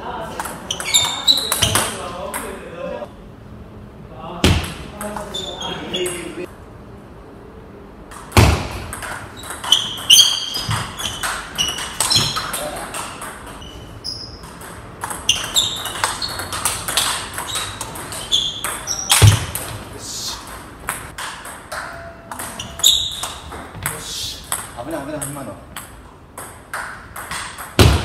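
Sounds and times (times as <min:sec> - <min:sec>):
table tennis ball pinging: 0:00.4 - 0:02.6, 0:08.1 - 0:19.8, 0:20.4 - 0:28.0.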